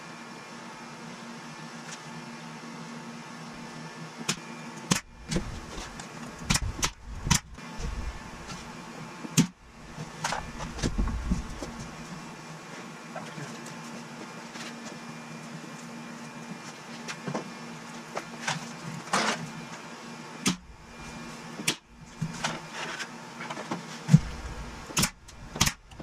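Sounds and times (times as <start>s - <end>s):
steady low hum: 0.0s - 26.0s
low rumbling handling noise: 10.3s - 12.0s.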